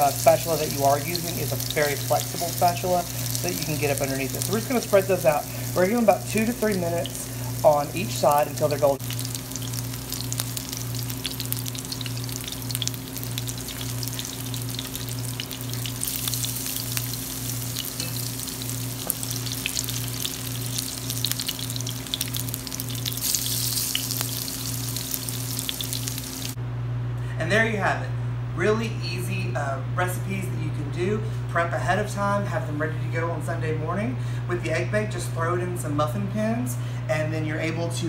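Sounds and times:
food sizzling in hot oil: 0.0s - 26.6s.

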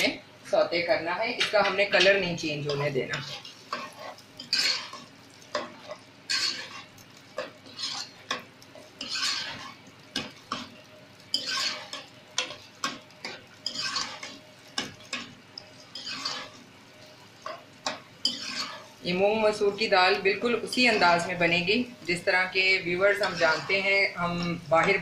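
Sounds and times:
onion sizzling in oil: 0.0s - 25.0s
metal spoon scraping pot: 2.7s - 10.7s, 11.3s - 16.6s, 17.4s - 19.0s, 23.1s - 25.0s.

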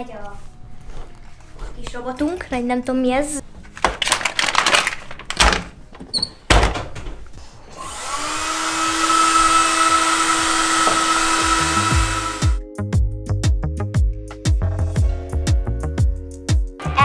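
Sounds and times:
hair dryer running: 7.7s - 12.6s.

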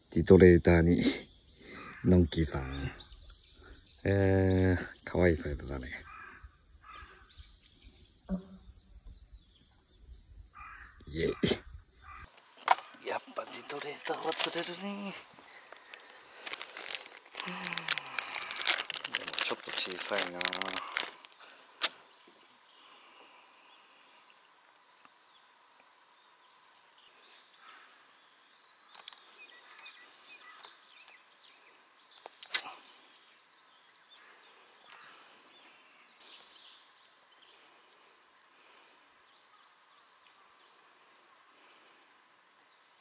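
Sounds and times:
faint bird calls: 0.7s - 43.0s
sharp clicks: 32.1s - 32.8s.

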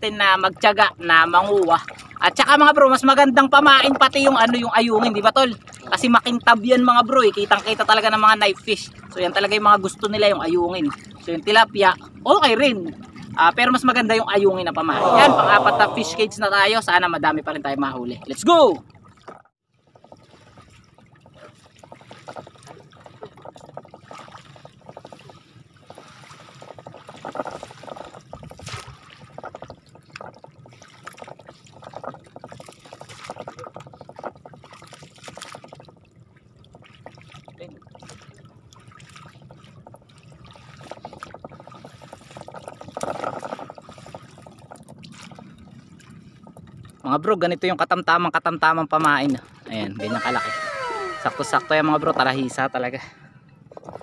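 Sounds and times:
water splashing and dripping: 0.0s - 13.9s, 18.2s - 47.0s.

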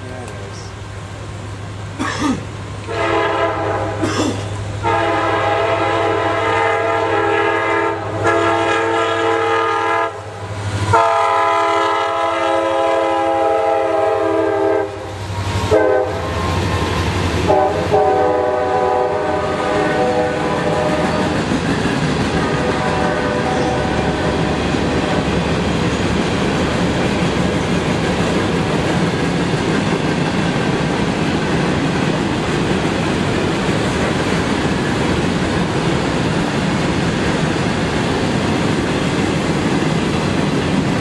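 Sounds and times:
train wheels on rails: 0.0s - 41.0s
locomotive horn blasts: 2.9s - 4.0s, 4.8s - 16.6s, 17.4s - 21.4s, 22.4s - 25.3s.

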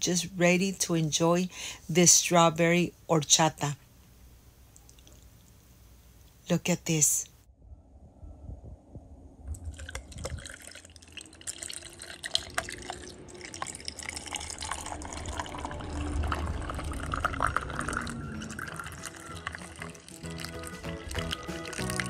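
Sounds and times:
liquid pouring over ice: 9.7s - 22.0s.

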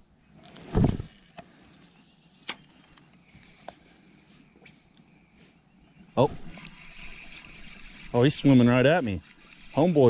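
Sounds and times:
high-pitched insect chirring: 6.2s - 10.0s.

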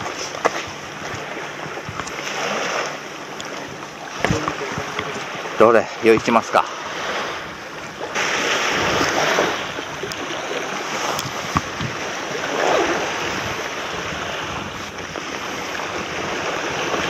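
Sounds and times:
light clicks of fishing gear: 0.0s - 2.3s, 3.2s - 5.4s, 10.0s - 10.3s, 10.9s - 11.9s
small waves washing onto shore: 0.0s - 17.0s
wind on microphone: 0.0s - 17.0s.

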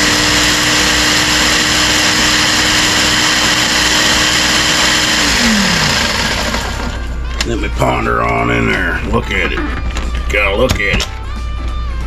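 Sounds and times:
blender motor grinding: 0.0s - 7.2s.

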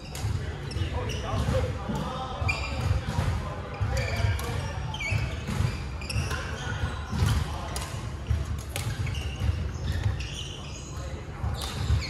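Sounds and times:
shoes squeaking: 0.0s - 3.1s, 3.7s - 12.0s
racket hitting shuttlecock: 4.2s - 10.2s, 11.4s - 12.0s.

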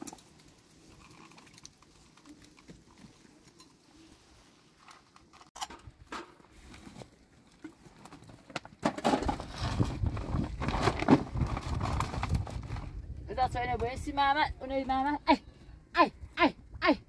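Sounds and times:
deep rumble and crackling: 9.3s - 14.8s
wind buffeting microphone: 9.6s - 14.8s.

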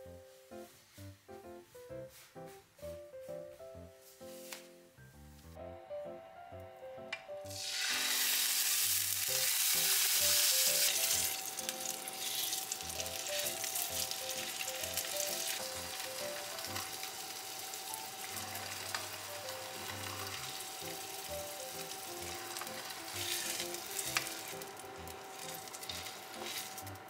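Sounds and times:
meat sizzling in a frying pan: 7.5s - 27.0s.

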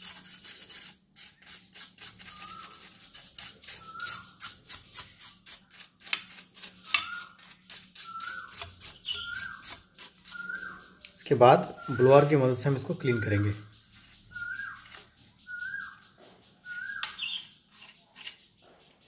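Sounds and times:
brushing strokes on fan: 0.0s - 10.5s
birds chirping: 0.0s - 19.0s.

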